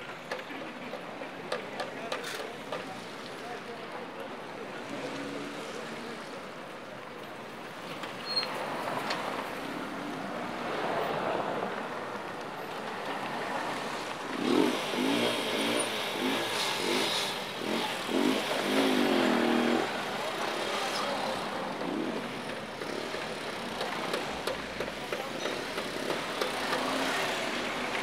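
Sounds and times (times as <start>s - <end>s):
cars driving past: 8.6s - 28.0s.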